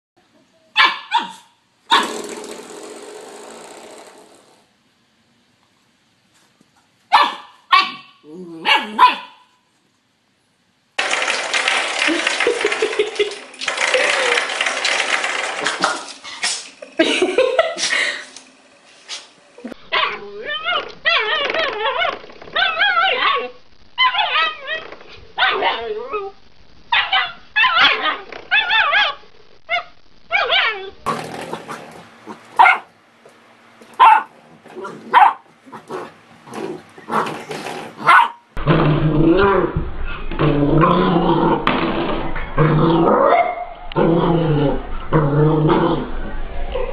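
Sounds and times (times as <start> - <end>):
puppy yipping: 0.8 - 2.0, 7.1 - 8.1, 27.0 - 30.9
puppy barking: 0.8 - 2.1, 7.1 - 9.5, 19.9 - 21.3, 25.4 - 25.9, 26.9 - 29.2, 32.6 - 32.9, 34.0 - 35.9, 38.0 - 38.5.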